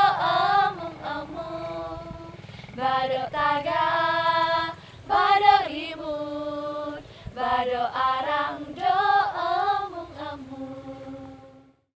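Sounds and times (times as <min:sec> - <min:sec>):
women singing together: 0:00.0 - 0:11.8.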